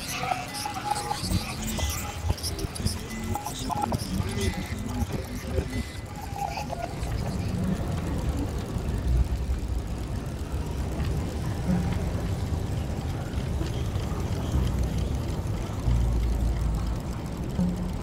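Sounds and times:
amplified violin and electronics drone: 0.0 - 10.6.

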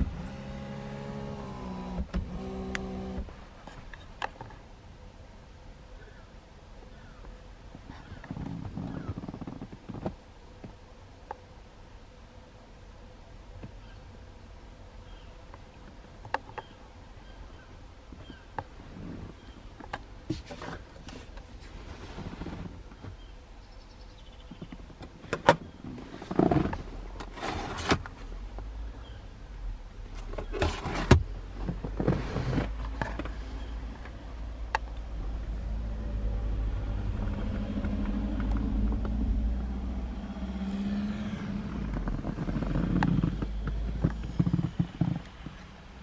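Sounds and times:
low hum: 34.5 - 44.7.

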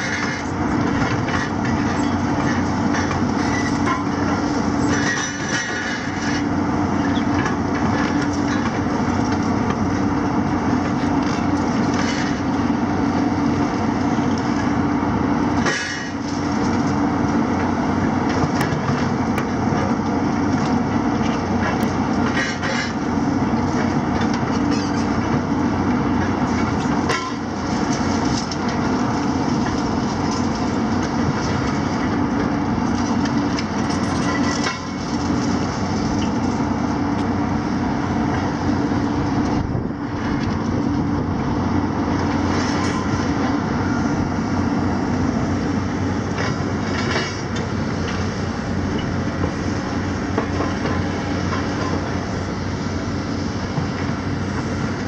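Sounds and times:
diesel engines running under load: 0.0 - 55.0
debris crunching and clanking: 32.8 - 36.6.

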